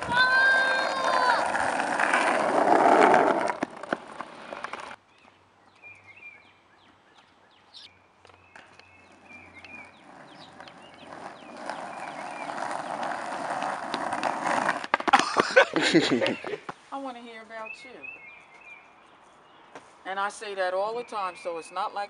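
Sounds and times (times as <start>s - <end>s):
skateboard wheels rolling on asphalt: 0.0s - 16.9s
birds chirping: 4.1s - 14.1s, 15.5s - 22.0s.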